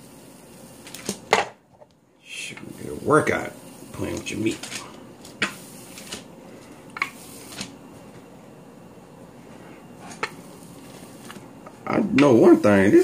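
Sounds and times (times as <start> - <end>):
rolling pin rolling over meat: 2.5 - 8.3, 9.4 - 13.0.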